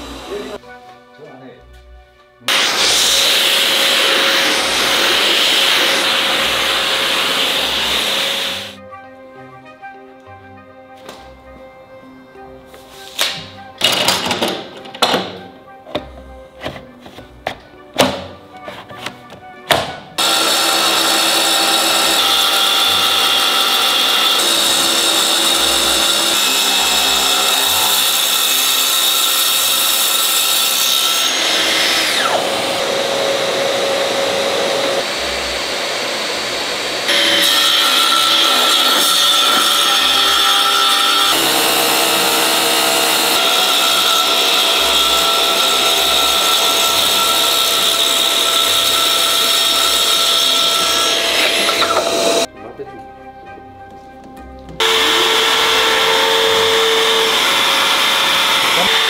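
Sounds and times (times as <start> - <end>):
power tool running on wood: 0.0 - 0.6, 2.5 - 8.8, 20.2 - 52.5, 54.8 - 59.0.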